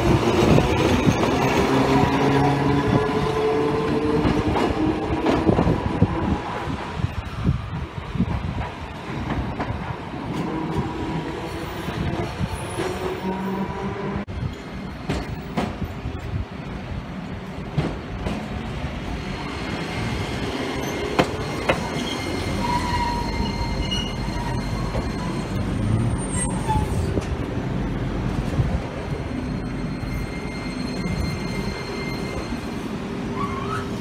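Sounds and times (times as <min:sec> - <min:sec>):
streetcar wheels rumbling on rails: 0:00.0 - 0:34.0.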